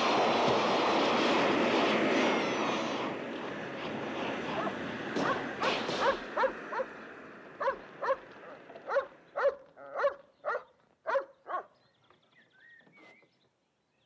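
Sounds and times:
dog barking: 4.6s - 5.4s, 6.0s - 6.9s, 7.6s - 11.8s
firework rockets fizzing: 5.0s - 6.4s.

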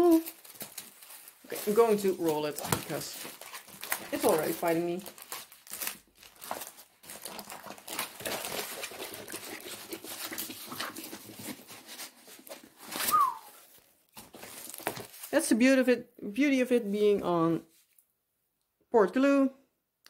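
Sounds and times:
plastic rustling and crinkling: 0.0s - 15.6s.

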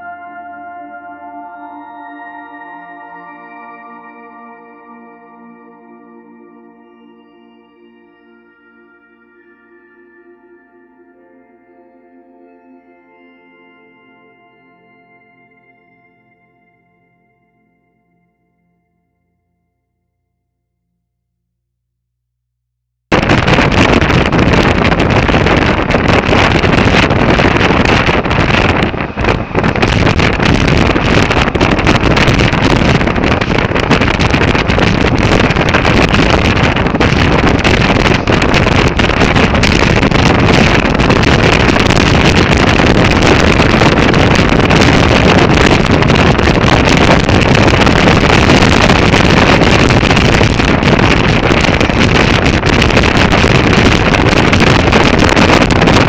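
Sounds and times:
wind rush on microphone: 23.1s - 56.0s
motorcycle running: 23.4s - 56.0s.

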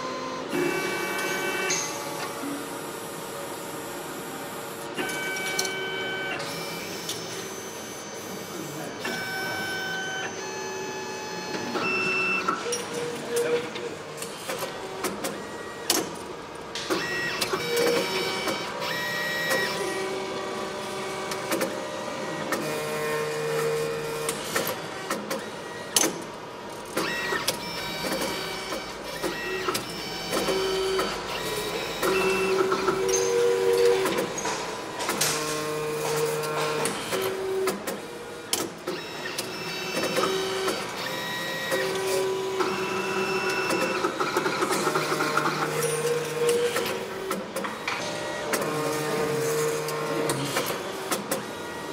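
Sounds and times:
machine clicks: 12.7s - 19.8s, 21.3s - 21.8s, 23.5s - 51.5s.

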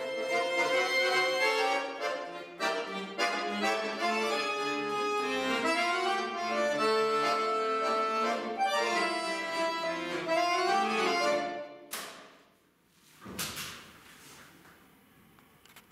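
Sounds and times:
accordion playing chords: 0.0s - 11.9s
sharp click: 11.9s - 12.4s.

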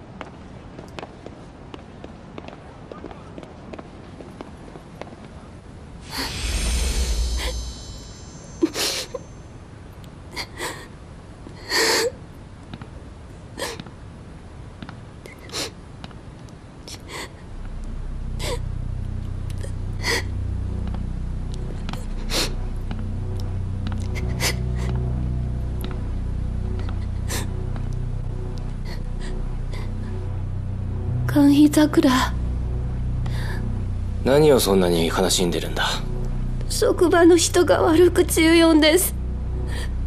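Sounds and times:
brief rushing noise: 6.0s - 9.5s
low music drone: 6.0s - 10.0s, 17.1s - 40.0s.

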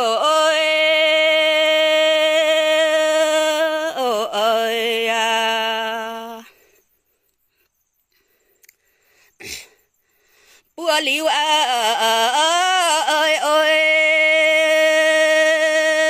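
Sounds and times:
woman singing unaccompanied: 0.0s - 6.6s, 10.8s - 16.0s.

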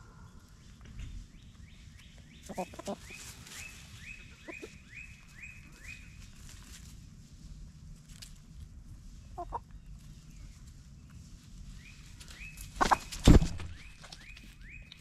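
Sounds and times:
chickens calling: 0.0s - 6.6s, 9.2s - 10.8s, 11.8s - 15.0s.

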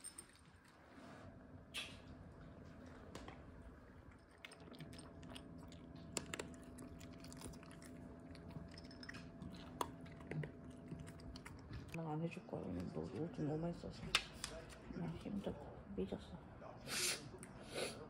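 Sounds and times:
dog chewing and crunching: 4.0s - 12.0s.

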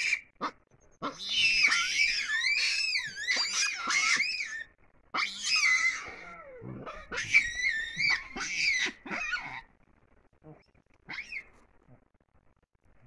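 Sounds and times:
young baboons screaming: 0.0s - 9.7s, 11.0s - 11.6s.

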